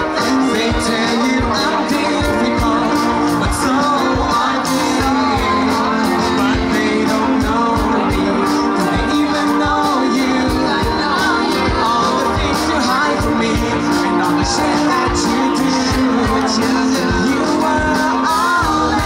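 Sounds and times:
drum beat: 0.0s - 19.0s
electric guitar: 0.0s - 19.0s
person singing: 0.0s - 19.0s.

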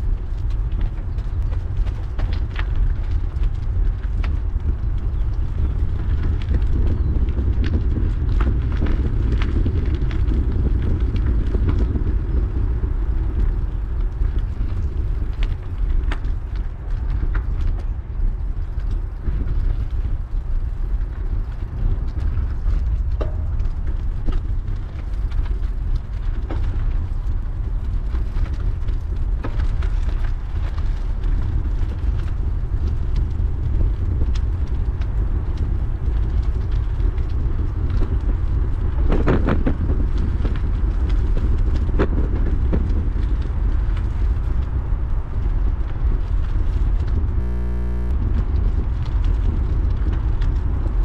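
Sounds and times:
bike tyres rumbling on gravel: 0.0s - 51.0s
small clicks and ticks: 0.0s - 51.0s.

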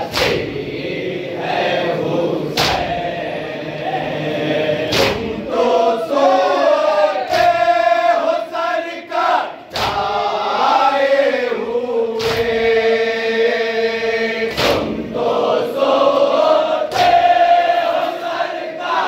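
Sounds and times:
hands slapping chests: 0.0s - 0.5s, 2.5s - 2.9s, 4.9s - 5.4s, 9.7s - 10.2s, 12.2s - 12.6s, 14.5s - 15.0s, 16.9s - 17.2s
men chanting in unison: 0.0s - 19.0s.

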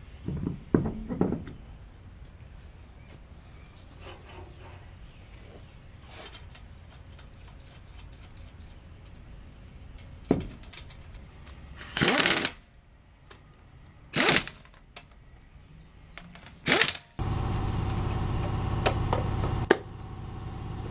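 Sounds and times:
pneumatic impact wrench bursts: 11.8s - 12.6s, 14.1s - 14.7s, 16.6s - 17.1s
steady hum: 17.2s - 20.9s.

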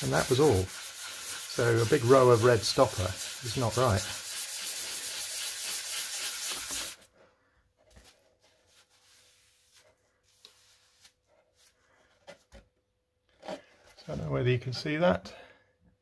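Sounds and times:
sandpaper rubbing rapidly: 0.0s - 7.0s
faint wiping: 0.0s - 12.5s.

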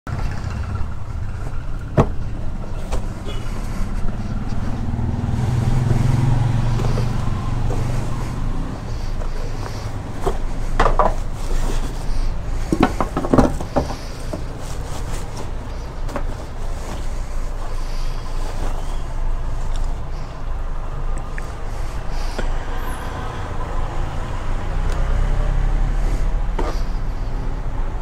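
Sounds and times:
cardboard box rustling and scraping: 1.4s - 19.6s.

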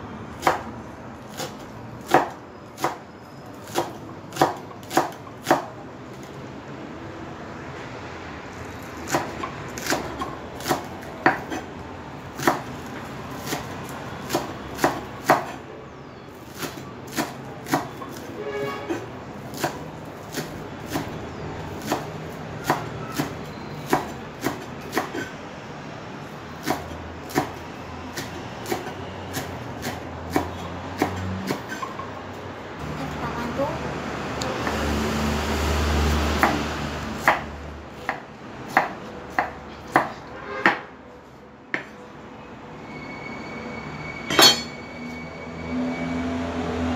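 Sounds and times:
knife chopping on wooden board: 1.3s - 3.0s, 3.6s - 5.7s, 9.0s - 11.7s, 14.3s - 15.6s, 16.6s - 18.3s, 18.9s - 25.3s, 26.6s - 31.9s, 37.2s - 40.9s, 41.7s - 41.9s.

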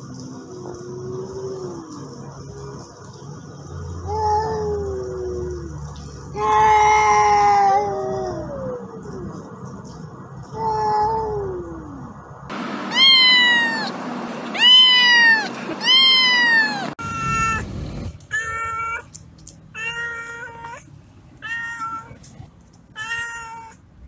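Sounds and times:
cat meowing drawn-out: 12.9s - 13.9s, 14.6s - 17.7s, 23.0s - 23.8s.

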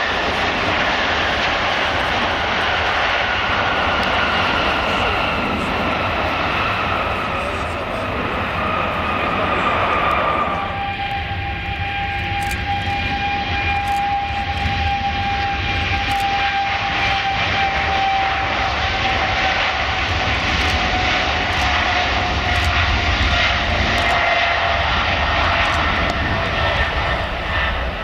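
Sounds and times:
jet engines running: 0.0s - 28.0s.

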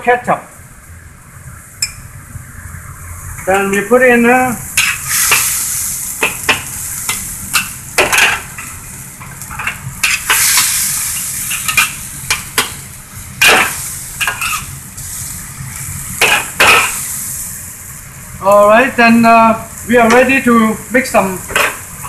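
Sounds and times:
food sizzling in a wok: 0.7s - 22.0s
metal spatula scraping a wok: 13.6s - 14.7s.

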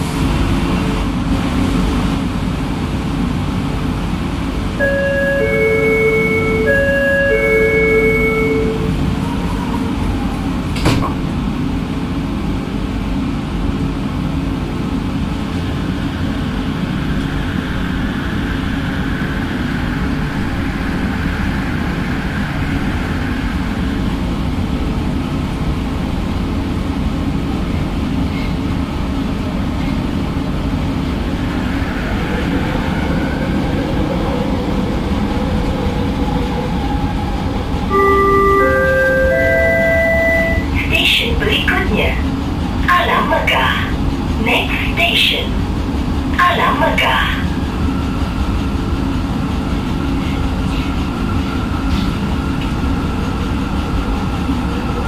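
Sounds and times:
train rumbling: 0.0s - 55.0s
train door thud: 10.7s - 11.4s.

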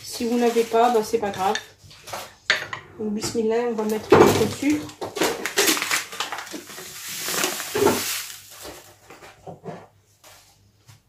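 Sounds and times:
sugar pouring onto metal: 6.5s - 8.7s.

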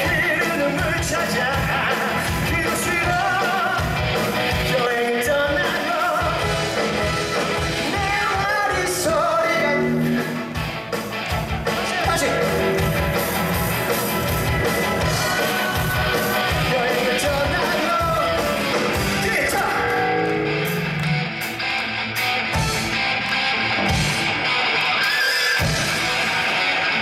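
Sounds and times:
bass and electric guitars: 0.0s - 27.0s
drum kit beats: 0.0s - 27.0s
long held notes: 19.6s - 21.6s.

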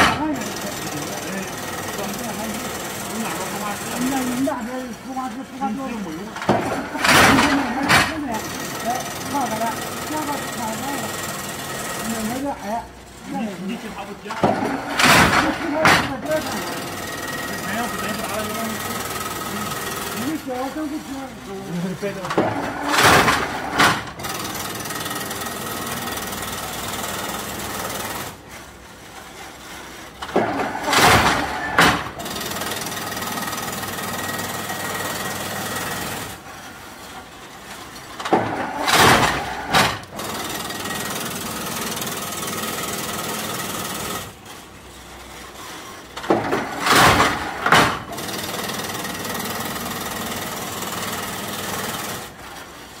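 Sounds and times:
weaving machine running: 0.0s - 53.0s
clattering knocks: 14.3s - 16.3s, 22.2s - 24.5s, 30.2s - 32.4s, 46.2s - 48.3s.

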